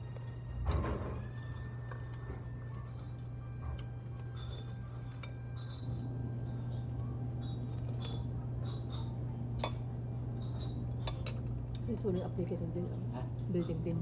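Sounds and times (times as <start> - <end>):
steady low hum: 0.0 - 14.0
dishes and cutlery clinking: 2.0 - 14.0.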